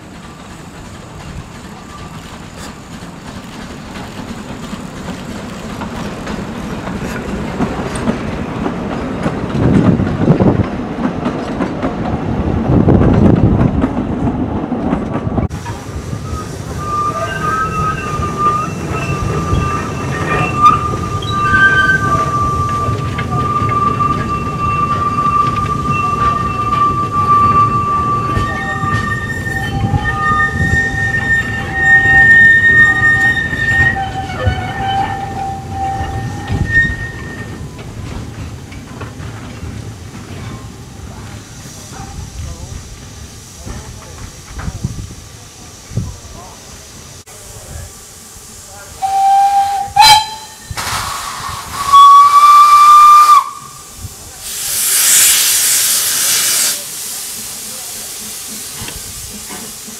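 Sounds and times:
train wheels squealing: 0:01.8 - 0:02.7, 0:16.1 - 0:38.1
steam locomotive whistle: 0:16.2 - 0:37.6, 0:49.0 - 0:56.8
steam hissing from drain cocks: 0:41.3 - 0:59.9.

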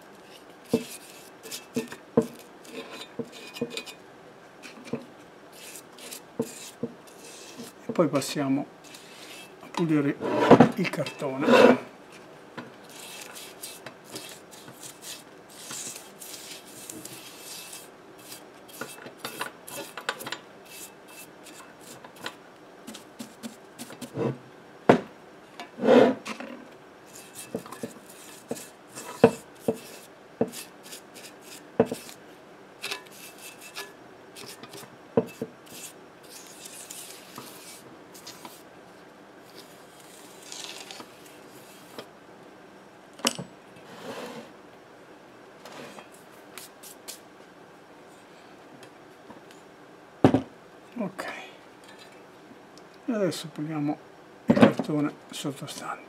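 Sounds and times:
scraping paper speaker cone: 0:12.9 - 0:19.0.

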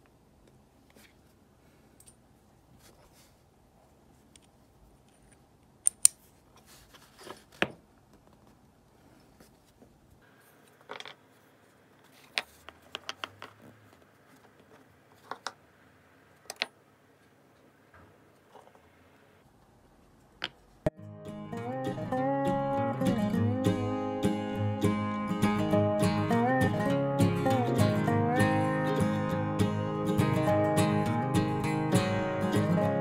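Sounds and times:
metal parts clicking together: 0:05.1 - 0:06.2
metal parts set down on wood: 0:10.8 - 0:11.2.

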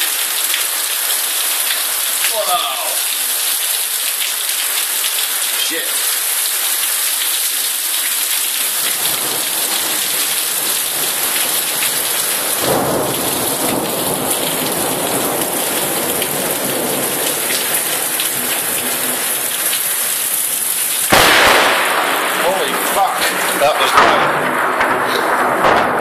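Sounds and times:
heavy rain hissing: 0:00.0 - 0:26.0
thunder rumbling: 0:08.8 - 0:19.3, 0:21.1 - 0:26.0.

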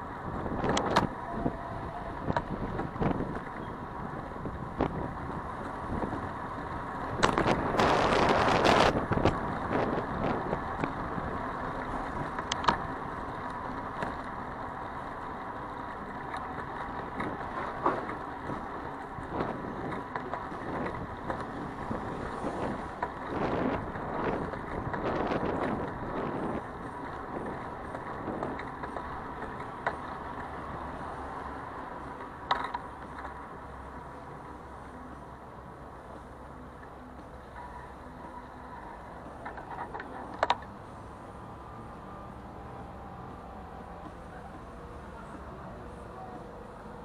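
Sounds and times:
city traffic noise: 0:00.0 - 0:47.0
wind on microphone: 0:00.2 - 0:06.4, 0:07.0 - 0:11.5, 0:18.4 - 0:28.7.

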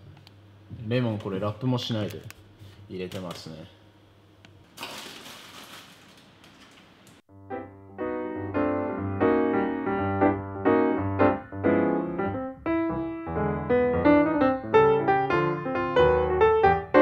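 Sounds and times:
piano music: 0:07.3 - 0:17.0.

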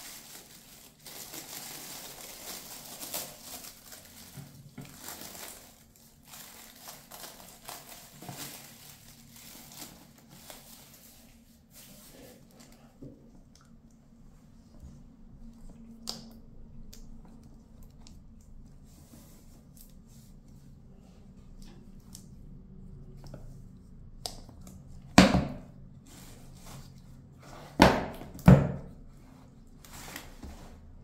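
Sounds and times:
packaging rustling: 0:00.0 - 0:11.8.

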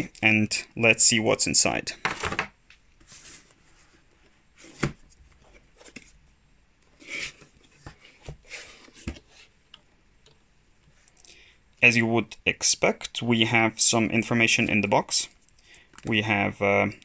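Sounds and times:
cardboard rustling and scraping: 0:02.0 - 0:06.2, 0:06.9 - 0:09.6.

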